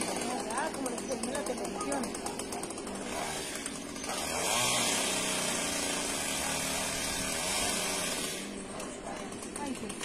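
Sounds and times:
chainsaw cutting tree trunk: 0.0 - 10.0.

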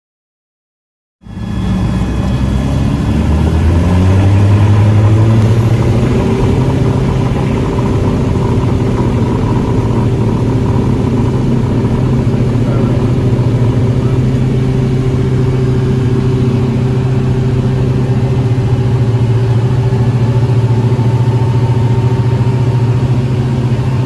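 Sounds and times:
aircraft piston engine and propeller: 1.2 - 24.0.

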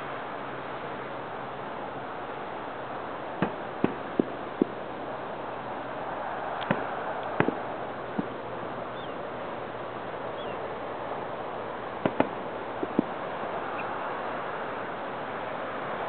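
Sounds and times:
steady outdoor hiss: 0.0 - 16.0
distant firework pops: 3.4 - 4.8, 6.6 - 8.4, 12.0 - 13.2.

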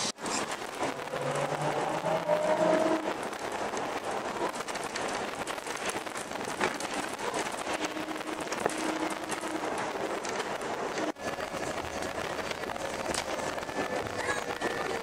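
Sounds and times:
small rattles and clicks: 3.2 - 15.0.

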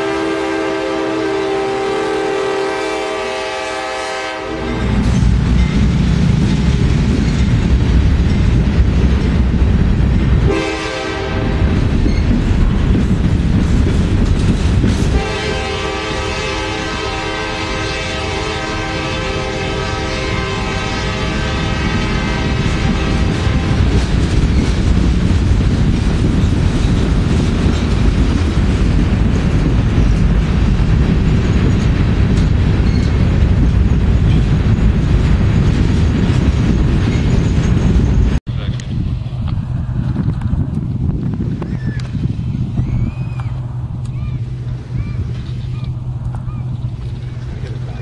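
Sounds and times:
diesel locomotive horn: 0.0 - 5.2, 10.3 - 12.0, 15.0 - 24.1
freight cars rumbling and clacking: 4.6 - 10.6, 11.3 - 16.4, 22.3 - 48.0.

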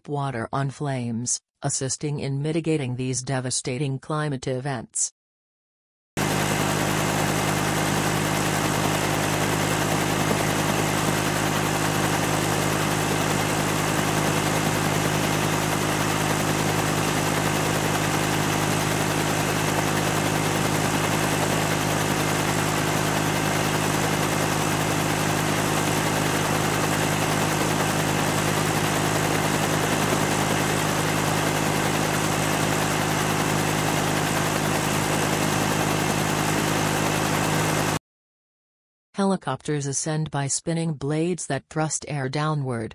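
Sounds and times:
helicopter engine and rotor drone: 6.2 - 38.0.

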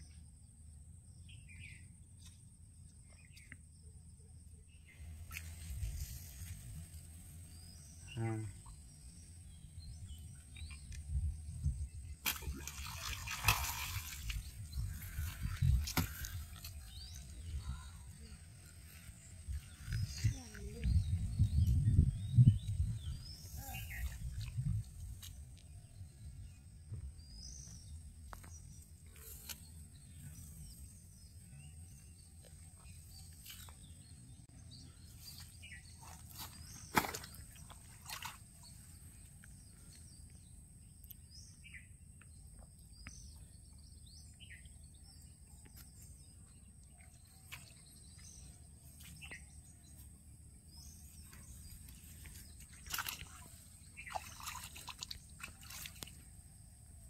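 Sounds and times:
bird chirps: 27.2 - 50.1.

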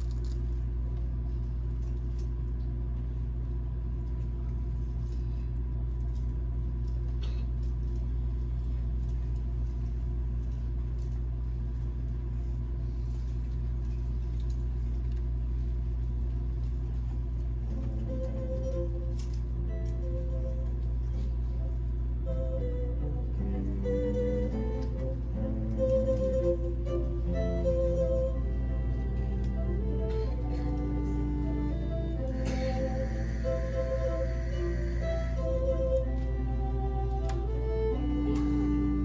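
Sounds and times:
low rumble and hum of hall: 0.0 - 39.0
music: 12.7 - 39.0.

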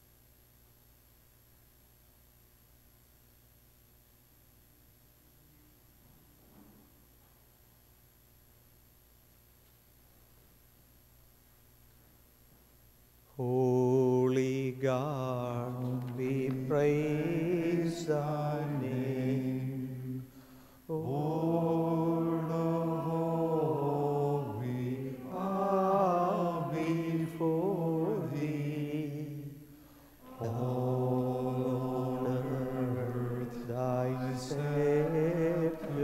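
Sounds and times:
slow sacred singing with vibrato: 13.3 - 36.0.

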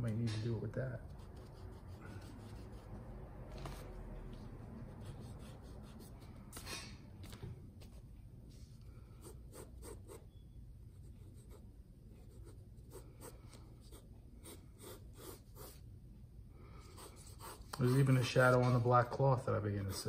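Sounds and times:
pencil scratching on paper: 1.0 - 3.0, 4.6 - 6.4, 9.2 - 10.2, 10.9 - 15.8, 16.8 - 18.8, 19.8 - 20.0.

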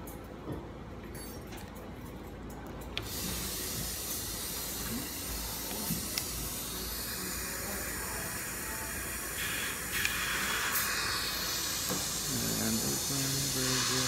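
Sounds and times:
steady hiss: 3.1 - 14.0.

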